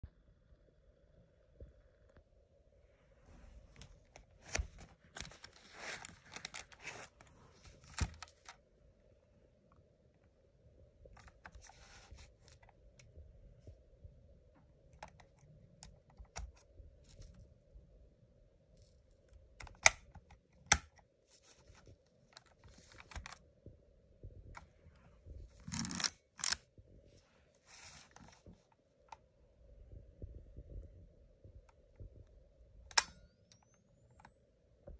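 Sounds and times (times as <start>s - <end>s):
rustling and scraping: 3.2s - 8.5s.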